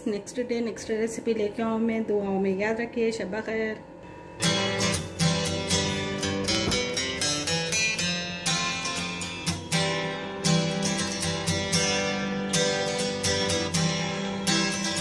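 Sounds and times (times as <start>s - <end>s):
acoustic guitar strumming: 4.0s - 15.0s.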